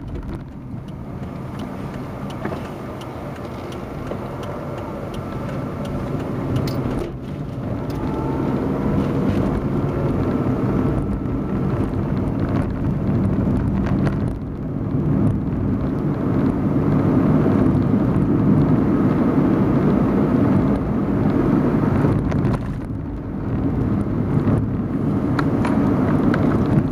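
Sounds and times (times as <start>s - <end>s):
road noise: 0.0s - 26.9s
vehicle engine: 0.0s - 26.9s.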